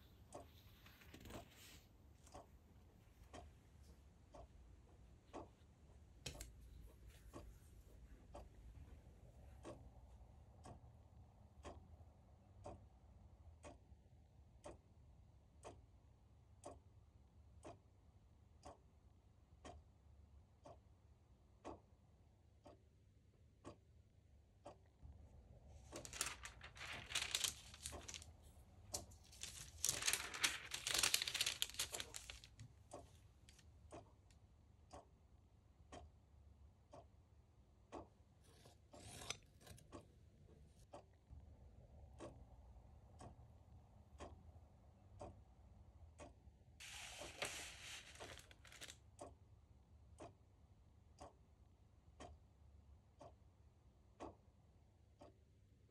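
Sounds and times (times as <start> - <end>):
clock ticking: 2.2 - 25.0, 25.9 - 41.4, 49.2 - 55.6
tissue paper rustling: 25.8 - 32.7, 46.8 - 48.9.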